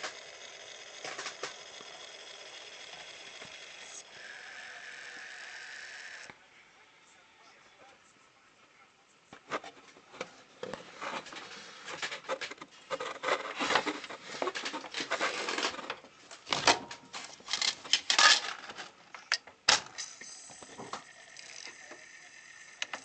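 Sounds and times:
cd mechanism clicking and rattling: 0:00.0 - 0:03.8, 0:12.0 - 0:20.2.

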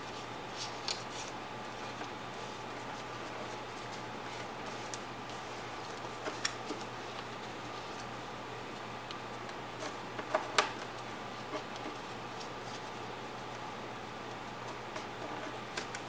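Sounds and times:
background hiss and hum: 0:00.0 - 0:16.0
paper being folded and creased: 0:00.1 - 0:08.2.

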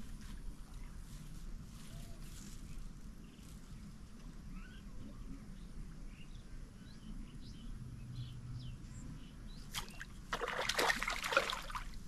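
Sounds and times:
fish splashing in water: 0:09.7 - 0:12.0.

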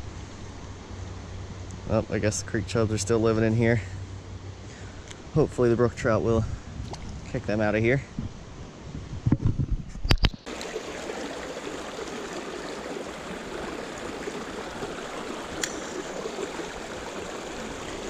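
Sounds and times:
creek flowing over rocks: 0:10.4 - 0:18.0.

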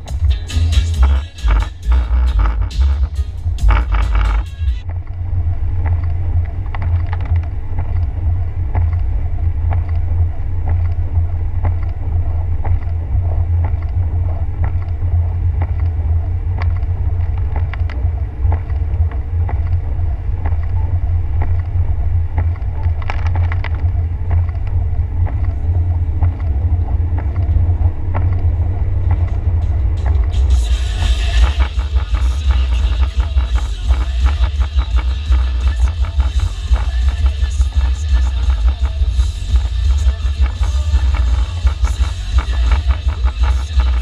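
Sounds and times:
light ticks: 0:05.8 - 0:09.1, 0:09.7 - 0:12.0.

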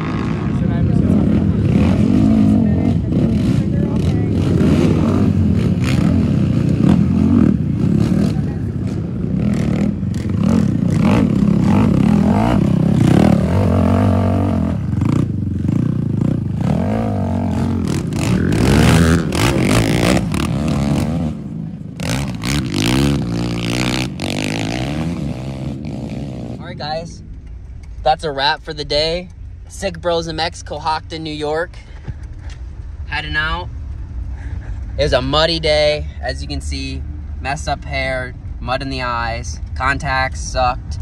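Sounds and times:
quad engines revving: 0:00.0 - 0:26.9.

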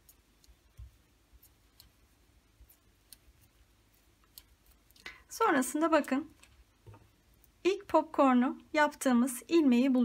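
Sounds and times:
knitting needles clicking: 0:00.0 - 0:07.9.

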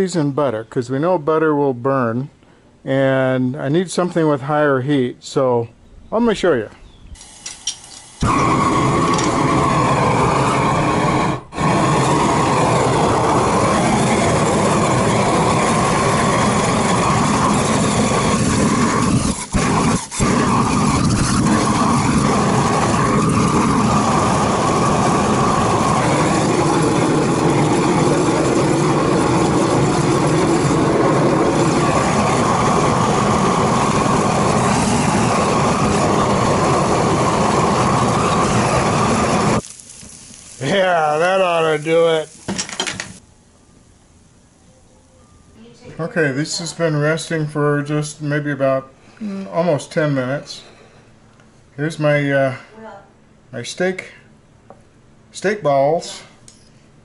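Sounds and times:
torch flame rushing: 0:07.2 - 0:43.2.

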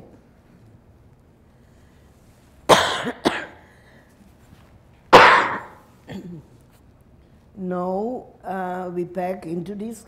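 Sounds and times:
person coughing: 0:02.7 - 0:03.6, 0:05.2 - 0:06.5.

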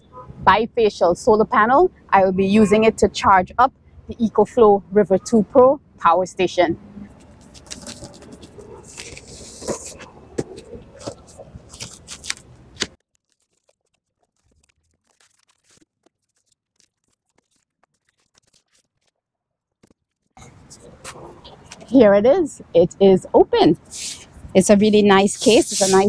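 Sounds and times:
cardboard box scraping and tearing: 0:07.4 - 0:19.1.

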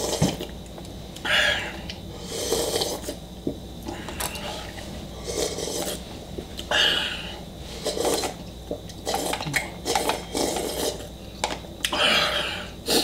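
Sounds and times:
slurping noodles: 0:02.2 - 0:03.2, 0:04.4 - 0:06.0, 0:07.7 - 0:08.4, 0:09.0 - 0:11.1.

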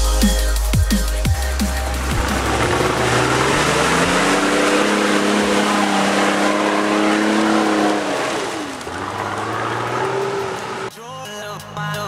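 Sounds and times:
engine revving hard: 0:01.4 - 0:10.9.

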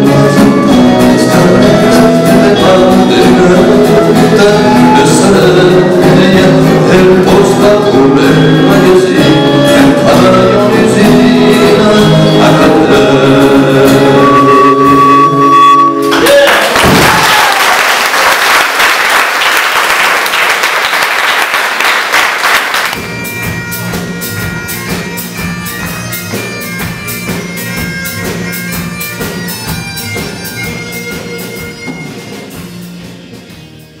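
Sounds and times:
folk band music with drone: 0:00.0 - 0:16.4, 0:22.7 - 0:34.0
audience applauding and cheering: 0:16.1 - 0:23.0.

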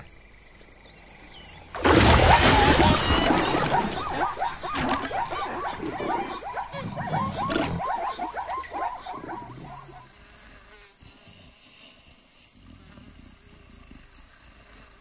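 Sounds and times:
insects chirping: 0:00.0 - 0:15.0
cartoon zebra yelps: 0:02.0 - 0:10.0.

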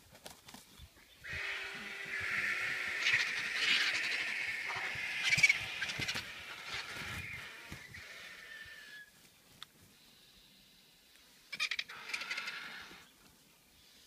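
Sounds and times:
vultures calling harshly: 0:01.2 - 0:09.1, 0:11.4 - 0:13.1.

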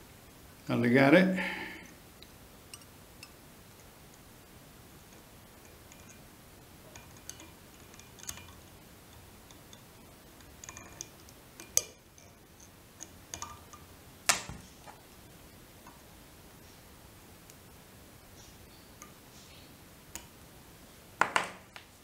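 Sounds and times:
fly tying tool metal clicks: 0:06.9 - 0:15.0.

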